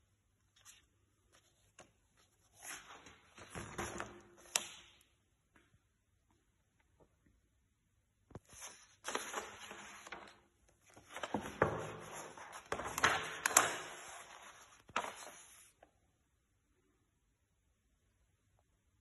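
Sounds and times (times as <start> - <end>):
paper pages rustling: 0.4 - 4.7, 8.3 - 15.9
paper crackling: 8.4 - 15.8.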